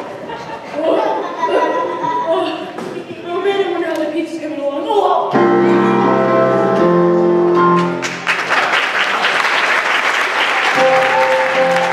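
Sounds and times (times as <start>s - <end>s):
audience applause: 7.8s - 11.9s.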